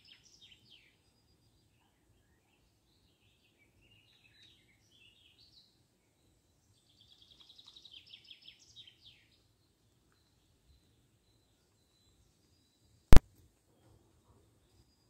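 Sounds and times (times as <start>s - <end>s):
songbird singing: 0.0s - 13.2s.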